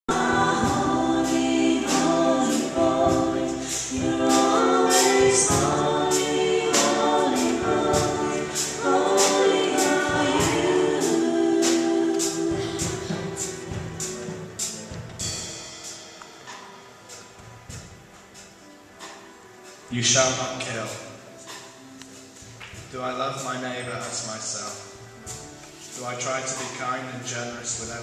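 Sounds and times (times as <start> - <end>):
people singing: 0.0 - 14.2
keyboard: 0.0 - 28.0
steady beat: 0.1 - 16.7.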